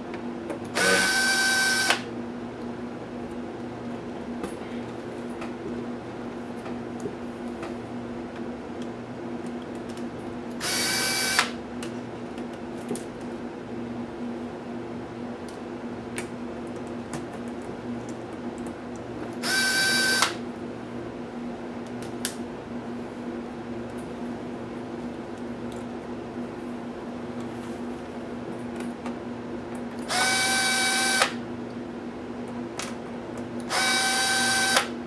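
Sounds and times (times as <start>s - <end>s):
electric screwdriver running: 0.8s - 2.1s, 10.6s - 11.5s, 19.4s - 20.4s, 30.1s - 31.4s, 33.7s - 34.9s.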